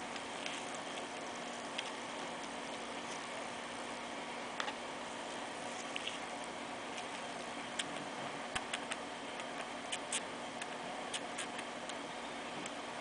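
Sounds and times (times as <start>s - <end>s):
steady low hiss: 0.0s - 13.0s
squirrel suckling clicks: 5.9s - 12.0s.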